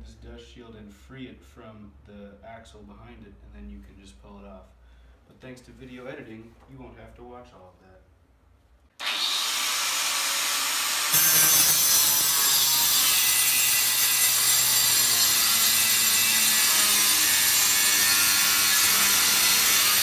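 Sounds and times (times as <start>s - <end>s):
angle grinder cutting metal: 9.0s - 20.0s.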